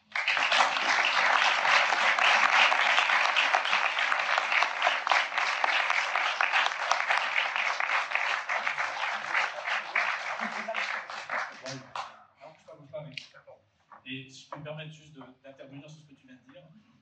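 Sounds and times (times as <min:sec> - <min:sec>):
crowd applauding: 0:00.0 - 0:12.2.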